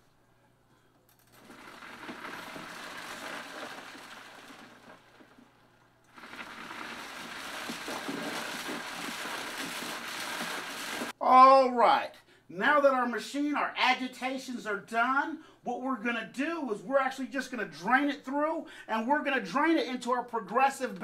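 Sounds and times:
machine agitator churning water: 0:01.3 - 0:05.5, 0:06.1 - 0:11.2.

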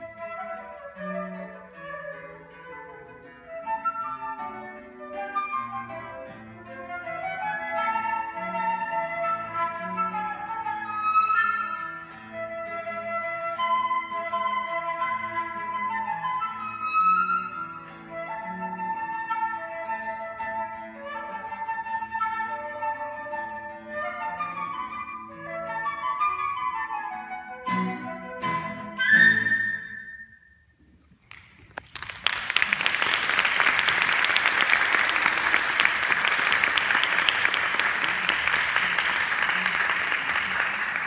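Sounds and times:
flute playing tango melody: 0:00.0 - 0:30.8
audience applauding: 0:31.2 - 0:41.0.

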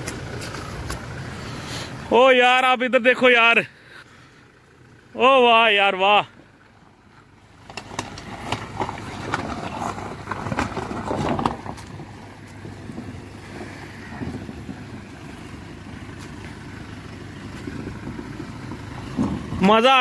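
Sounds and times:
tyres crunching over stones: 0:00.0 - 0:01.4, 0:06.6 - 0:20.0
water washing around wheels: 0:00.0 - 0:02.2, 0:07.1 - 0:20.0
vehicle engine running: 0:00.0 - 0:20.0.

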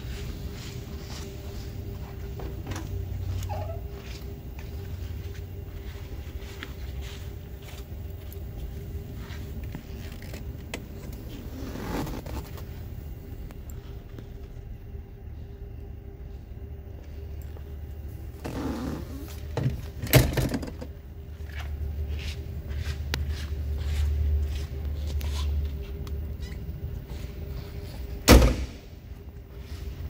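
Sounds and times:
steady low hum: 0:00.0 - 0:30.0
car door slamming: 0:28.2 - 0:28.8.

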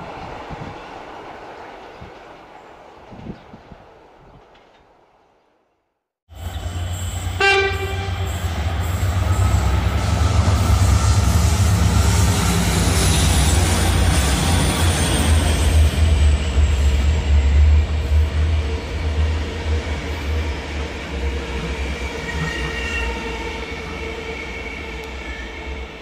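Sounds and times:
train rumbling past: 0:06.3 - 0:26.0
train horn blast: 0:06.4 - 0:13.1.

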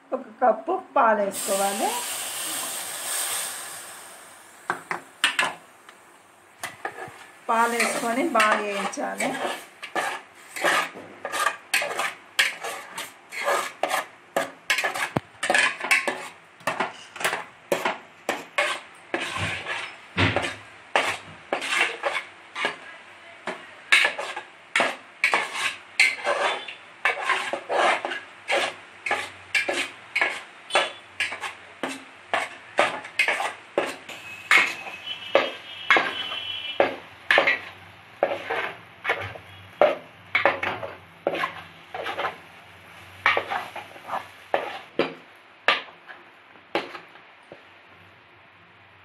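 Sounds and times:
spatula scraping a metal pan: 0:06.6 - 0:44.9.

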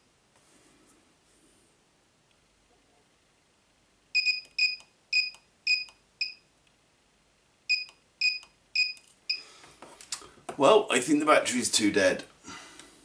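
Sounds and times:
short high beeps: 0:04.2 - 0:06.4.

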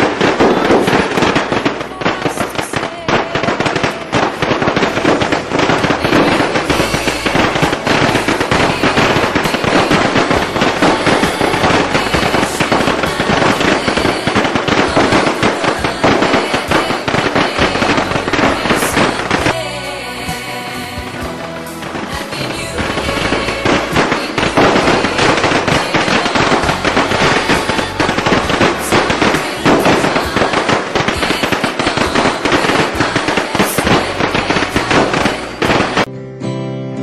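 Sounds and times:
firecrackers popping rapidly: 0:00.0 - 0:36.1.

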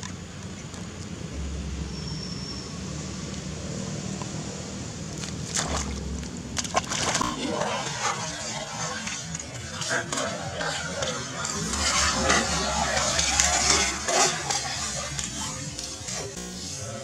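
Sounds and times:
steady low hum: 0:00.8 - 0:17.0
water splashing: 0:04.0 - 0:10.1.

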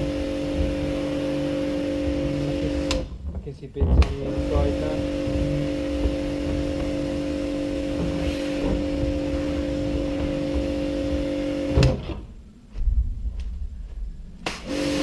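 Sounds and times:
water jet hissing on plastic: 0:00.0 - 0:03.0, 0:04.0 - 0:12.1, 0:14.4 - 0:15.0
pressure washer motor humming: 0:00.0 - 0:03.3, 0:04.0 - 0:12.3, 0:14.4 - 0:15.0
low thuds: 0:00.0 - 0:14.7.

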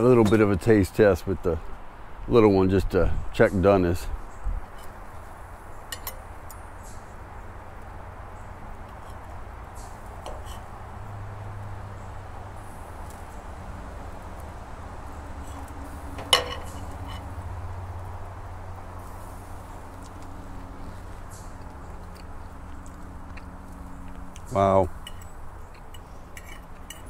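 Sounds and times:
knife and fork scraping plate: 0:10.2 - 0:10.7, 0:15.4 - 0:17.3, 0:25.9 - 0:27.0
knife clinking on plate: 0:16.2 - 0:17.3.

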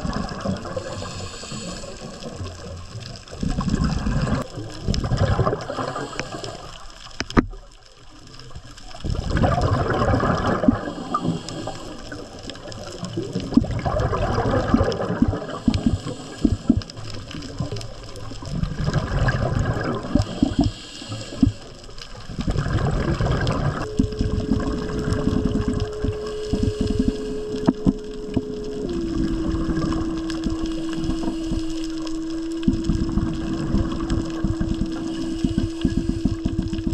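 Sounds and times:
exhaled bubble bursts: 0:00.0 - 0:07.3, 0:09.0 - 0:36.9
scuba regulator breathing: 0:00.3 - 0:04.4, 0:05.5 - 0:07.3, 0:10.3 - 0:13.0, 0:14.0 - 0:17.8, 0:18.4 - 0:36.9
steady hum: 0:18.5 - 0:36.9.

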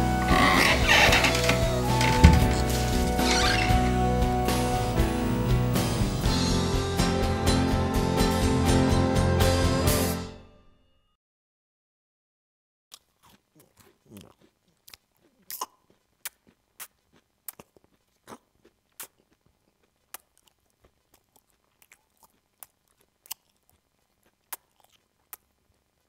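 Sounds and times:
lip and tongue clicks: 0:12.9 - 0:26.0.

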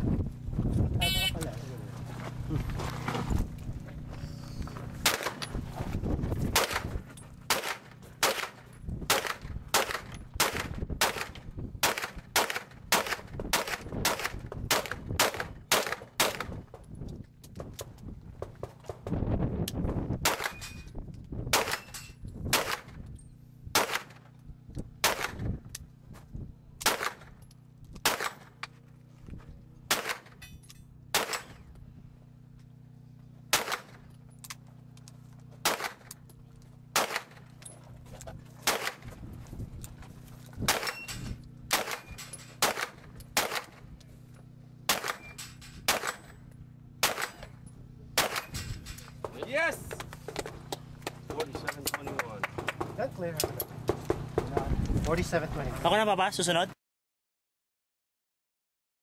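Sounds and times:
gunshots: 0:05.0 - 0:05.4, 0:06.5 - 0:16.6, 0:20.2 - 0:20.7, 0:21.5 - 0:23.0, 0:23.8 - 0:24.2, 0:25.0 - 0:25.5, 0:26.8 - 0:27.4, 0:28.0 - 0:28.6, 0:29.9 - 0:30.4, 0:31.1 - 0:31.6, 0:33.5 - 0:34.0, 0:35.6 - 0:36.1, 0:36.9 - 0:37.4, 0:38.6 - 0:39.1, 0:40.7 - 0:43.8, 0:44.9 - 0:46.3, 0:47.0 - 0:47.5, 0:48.2 - 0:48.6.

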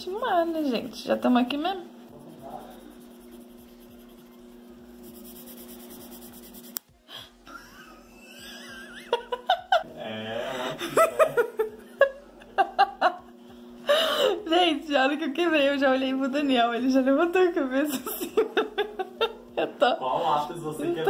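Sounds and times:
colored pencil shading on paper: 0:00.0 - 0:06.8
giggling and laughter: 0:07.5 - 0:09.8, 0:10.6 - 0:13.4, 0:17.9 - 0:19.9.

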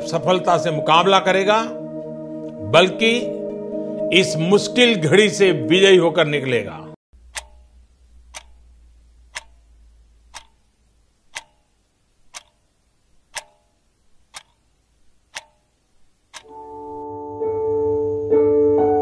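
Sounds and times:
low hum: 0:07.2 - 0:12.0
clock ticking: 0:07.2 - 0:16.6.

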